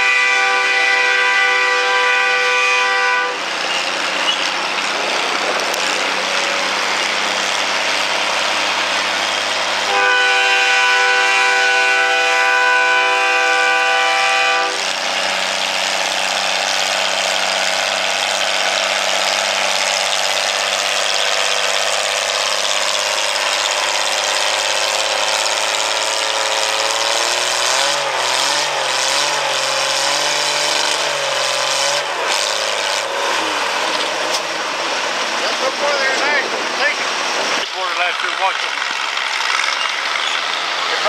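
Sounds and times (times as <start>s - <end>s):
loud horn chord: 0.0s - 3.5s, 9.8s - 14.9s
tractor engine running under load: 0.0s - 41.0s.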